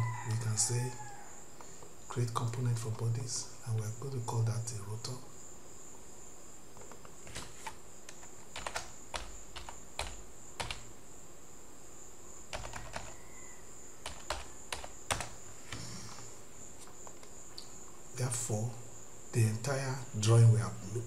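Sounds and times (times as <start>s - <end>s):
faint high-pitched whine: 0.0s - 21.0s
keyboard keys clicking: 6.8s - 10.9s, 12.5s - 13.2s, 14.0s - 15.4s.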